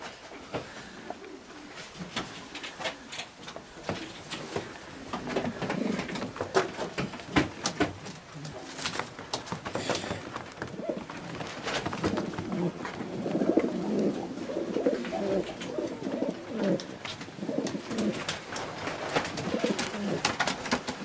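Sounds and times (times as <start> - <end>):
pigeons cooing: 3.9 - 6.7, 9.8 - 18.6, 19.2 - 21.0.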